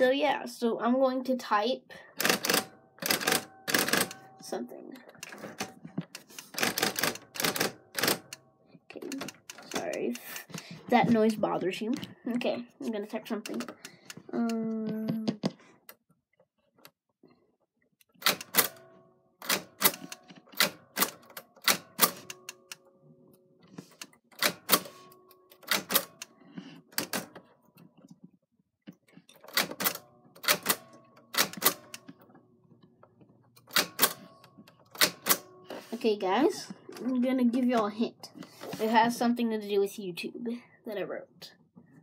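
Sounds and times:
typewriter key strikes: 18.2 - 18.8, 19.4 - 22.8, 25.6 - 26.3, 34.9 - 35.5.

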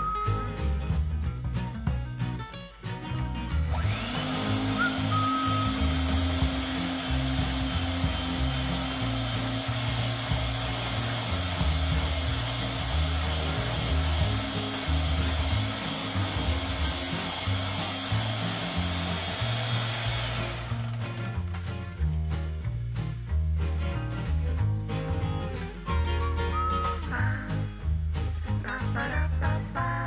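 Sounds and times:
background music with bass: 0.0 - 30.0
electric hand mixer running: 3.7 - 21.4.

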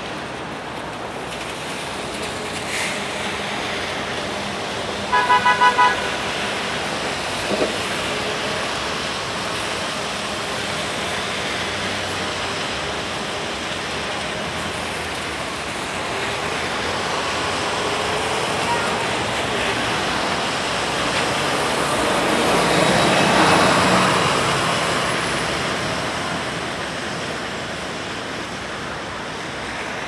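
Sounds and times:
traffic on wet street: 0.0 - 30.0
car horn toots: 5.1 - 6.2.

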